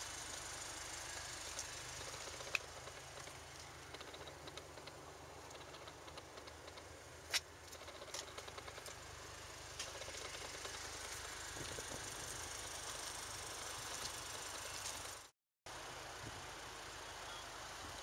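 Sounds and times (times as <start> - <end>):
car engine idling: 0.0 - 18.0
sharp clicks: 2.0 - 9.0.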